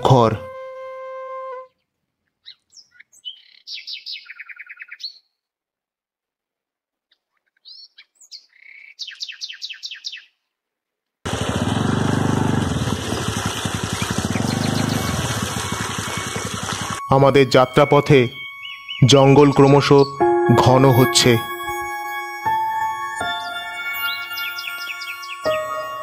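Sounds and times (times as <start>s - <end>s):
songbird trilling: 2.4s - 5.3s, 7.5s - 10.3s, 14.0s - 20.2s
water gushing onto stones: 11.3s - 17.0s.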